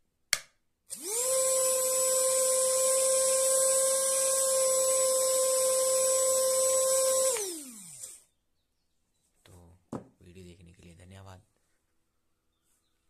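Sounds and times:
electric motor whining: 0:00.9 - 0:08.3.

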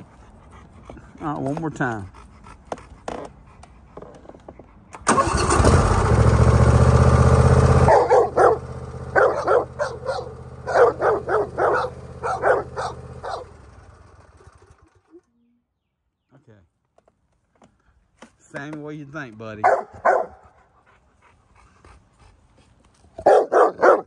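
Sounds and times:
lawnmower engine cranking and running: 0:05.0 - 0:15.3
dog barking: 0:07.8 - 0:13.5, 0:19.6 - 0:20.4, 0:23.2 - 0:24.0.

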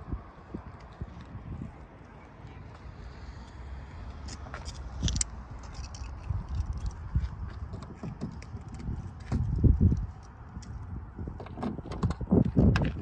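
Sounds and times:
footsteps on asphalt: 0:00.2 - 0:11.4
small clicks and rustles: 0:04.2 - 0:13.0.

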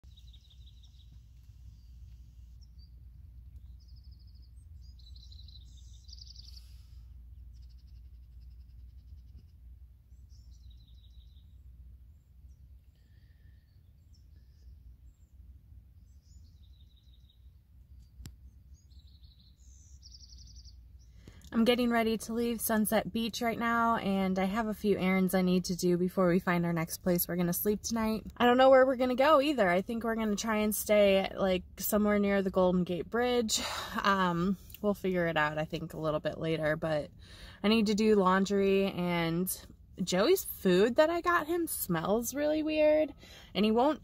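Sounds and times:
small birds chirping and trilling: 0:00.0 - 0:21.5
low outdoor rumble: 0:00.0 - 0:44.0.

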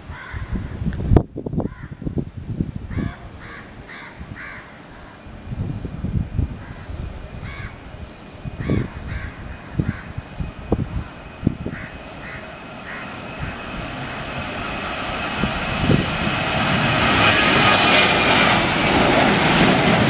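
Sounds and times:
low gusty rumble: 0:00.0 - 0:20.0
crows cawing: 0:00.1 - 0:00.7, 0:01.7 - 0:02.0, 0:02.9 - 0:05.2, 0:06.6 - 0:07.8, 0:08.6 - 0:10.2, 0:11.6 - 0:13.8
faint steady whine: 0:02.1 - 0:17.4.

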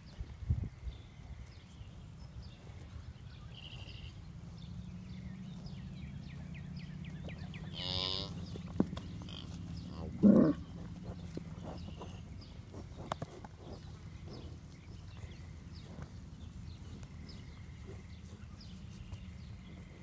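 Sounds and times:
cow grunting: 0:04.9 - 0:16.4
cattle mooing: 0:07.4 - 0:08.5, 0:09.1 - 0:10.8.

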